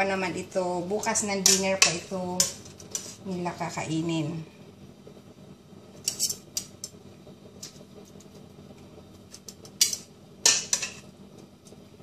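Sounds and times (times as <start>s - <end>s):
metal tongs clinking against pots: 1.0s - 3.2s, 9.3s - 11.1s.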